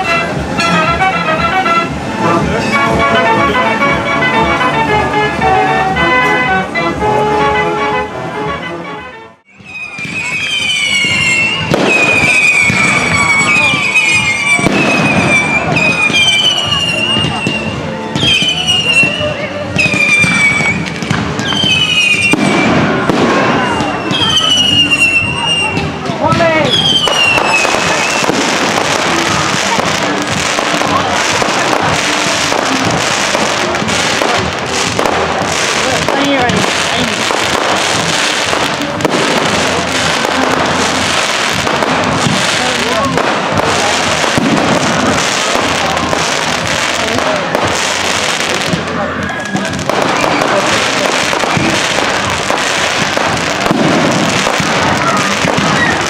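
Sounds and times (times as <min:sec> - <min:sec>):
fireworks crackling and popping: 0:00.0 - 0:08.5, 0:09.4 - 0:56.0
rockets going up: 0:19.8 - 0:56.0.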